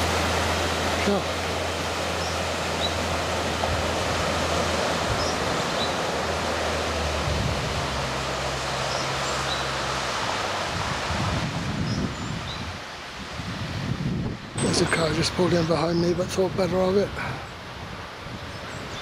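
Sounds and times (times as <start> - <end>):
car engine hum: 0.0 - 11.6
floodwater rushing: 0.0 - 19.0.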